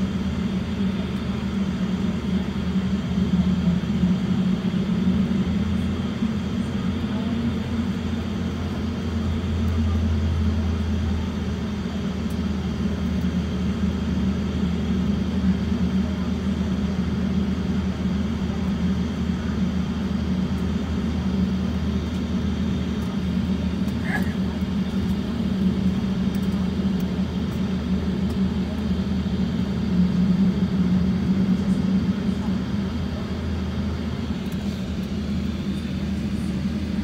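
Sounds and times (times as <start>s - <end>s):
airplane cabin drone: 0.0s - 37.0s.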